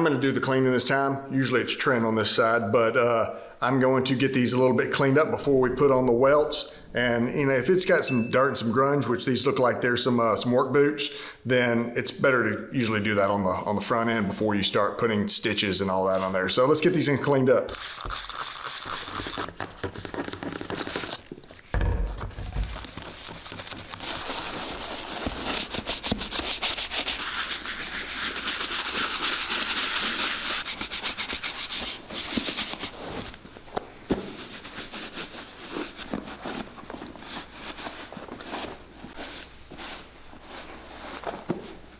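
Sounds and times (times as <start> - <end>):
stiff brush scrubbing a boot: 17.7 - 19.5, 23.0 - 32.8
cloth towel rubbing a boot: 17.7 - 21.2, 22.7 - 33.4, 34.1 - 41.9
low thump: 21.7 - 22.9.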